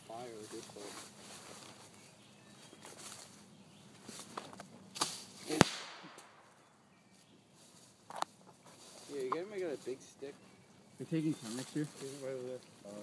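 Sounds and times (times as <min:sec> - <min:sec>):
firecracker pops: 0:05.0 - 0:06.5.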